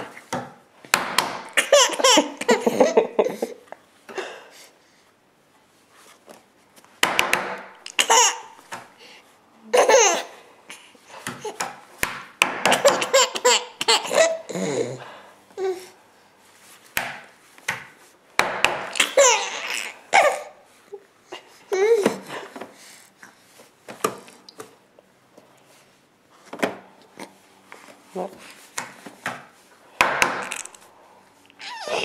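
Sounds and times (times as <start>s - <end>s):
baby laughing: 1.6s - 3.6s, 7.9s - 8.6s, 9.7s - 10.4s, 12.7s - 15.0s, 18.9s - 20.6s, 31.6s - 32.0s.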